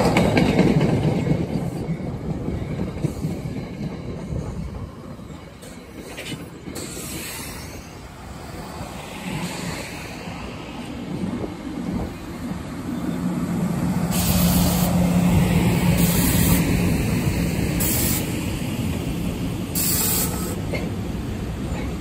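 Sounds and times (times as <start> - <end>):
train wheels rumbling on rail: 0.0 - 22.0
short bursts of hiss: 19.8 - 20.6.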